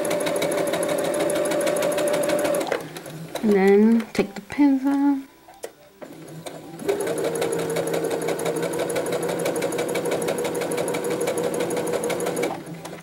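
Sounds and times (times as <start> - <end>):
sewing machine running: 0.0 - 3.8, 6.0 - 13.0.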